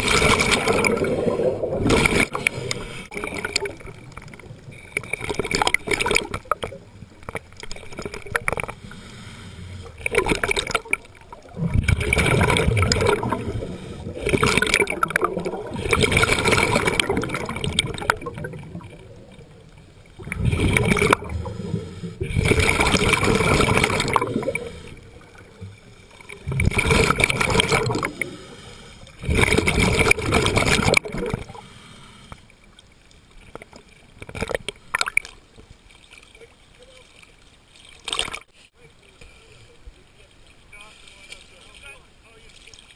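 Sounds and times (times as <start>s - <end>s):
diver exhaling bubbles underwater: 0.0s - 3.9s, 9.8s - 19.3s, 20.2s - 25.6s, 26.3s - 28.6s, 29.2s - 31.6s.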